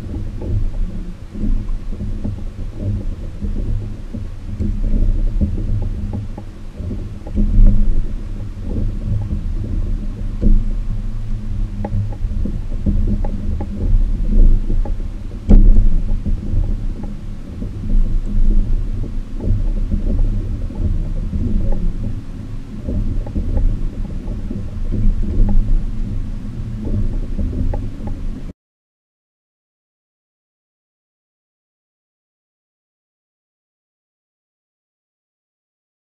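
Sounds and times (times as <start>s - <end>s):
muffled low rumbling: 0.0s - 28.5s.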